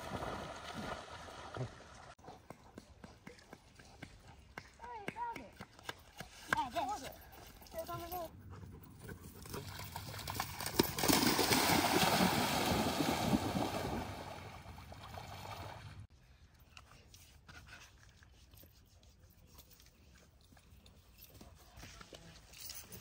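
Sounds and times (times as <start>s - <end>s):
dogs splashing through water: 0.0s - 2.2s, 9.2s - 16.1s.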